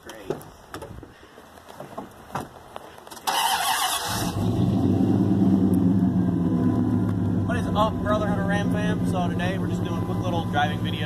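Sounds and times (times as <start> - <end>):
engine starter cranking: 3.2 - 4.7
engine idling: 3.3 - 11.0.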